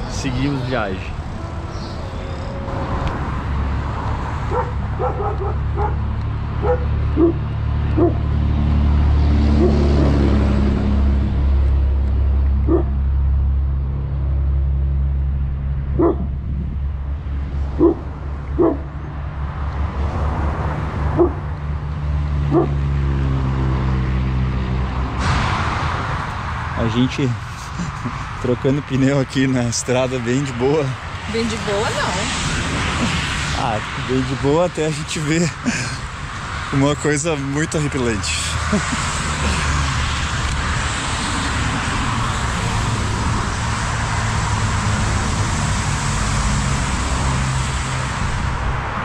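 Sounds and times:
low engine rumble: 0:00.0 - 0:32.4
dog barking: 0:04.5 - 0:06.0, 0:06.6 - 0:07.4, 0:08.0 - 0:08.2, 0:09.6 - 0:09.8, 0:12.7 - 0:13.0, 0:16.0 - 0:16.3, 0:17.8 - 0:18.0, 0:18.6 - 0:18.8, 0:21.2 - 0:21.4, 0:22.5 - 0:22.8.

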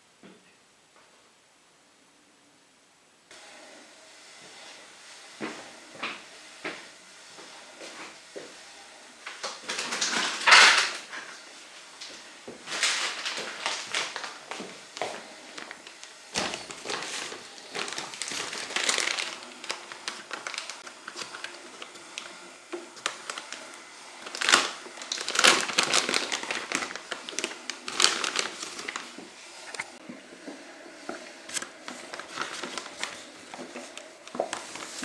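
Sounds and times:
plastic bag crinkling: 0:12.6 - 0:30.0, 0:31.5 - 0:35.0.

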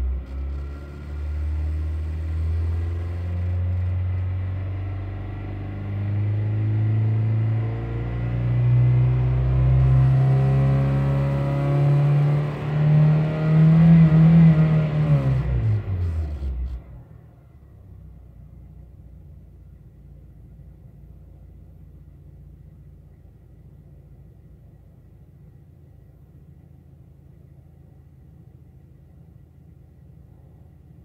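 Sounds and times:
car engine revving: 0:00.0 - 0:17.2.

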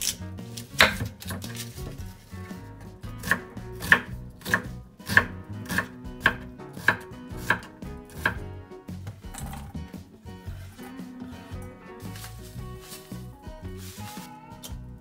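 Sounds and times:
knife chopping on wooden board: 0:00.0 - 0:01.6, 0:03.2 - 0:08.4.

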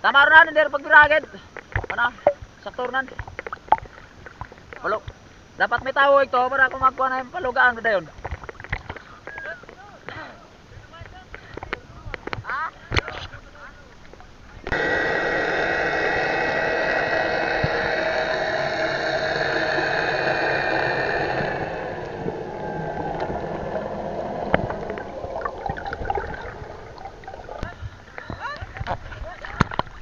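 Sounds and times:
underwater motorboat engine hum: 0:14.6 - 0:28.3
bubbling: 0:14.7 - 0:28.8
underwater clicks: 0:14.7 - 0:30.0
underwater water rush: 0:14.7 - 0:30.0.

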